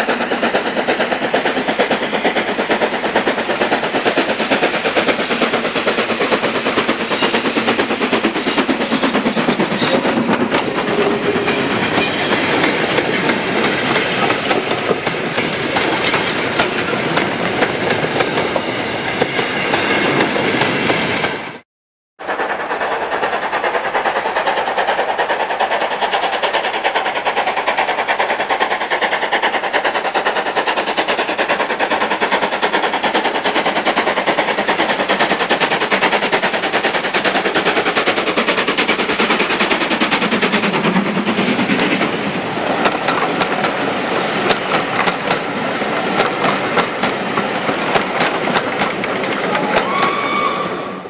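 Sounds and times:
carriages running on rails: 0.0s - 21.6s, 22.2s - 51.0s
steam locomotive exhaust beat: 0.0s - 21.6s, 22.2s - 51.0s
steady squeal: 1.6s - 14.4s.

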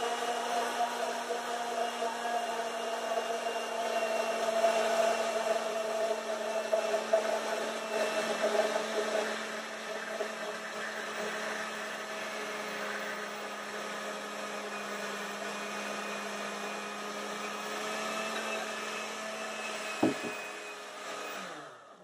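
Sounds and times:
blender motor running: 0.0s - 22.0s
brief knock: 20.0s - 20.4s.

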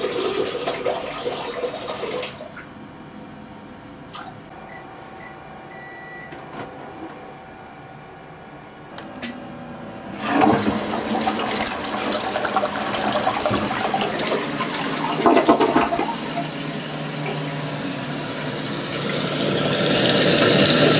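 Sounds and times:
toilet flushing: 0.0s - 2.8s, 10.2s - 20.9s
low hum: 2.6s - 11.5s.

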